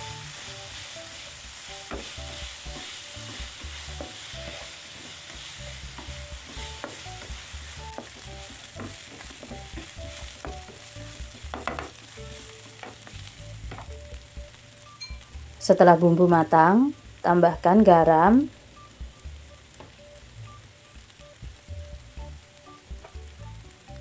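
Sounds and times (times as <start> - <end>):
spatula scraping and tapping pan: 0.0 - 14.3
food sizzling in oil: 0.0 - 24.0.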